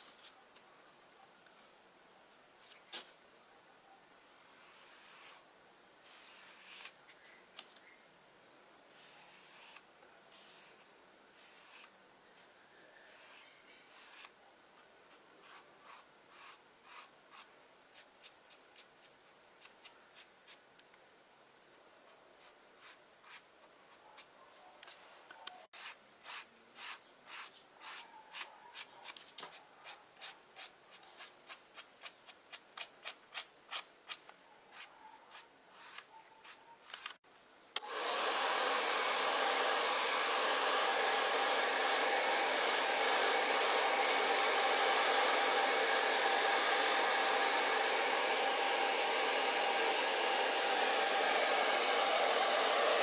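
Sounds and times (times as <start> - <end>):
hot-air dryer running: 37.8 - 53.0.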